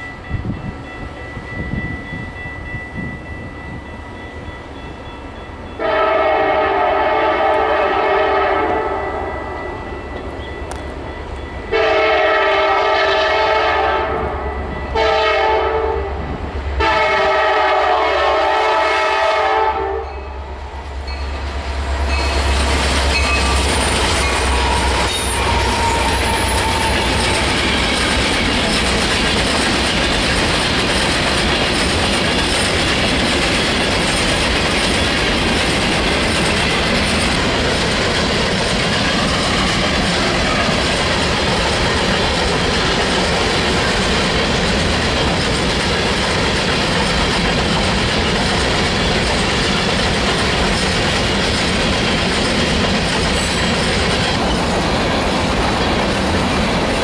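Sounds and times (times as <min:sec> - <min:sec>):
locomotive engines rumbling: 0:00.0 - 0:57.0
train horn blasts: 0:05.8 - 0:09.6, 0:11.7 - 0:20.8, 0:24.2 - 0:27.5
freight cars clattering on rails: 0:21.2 - 0:57.0.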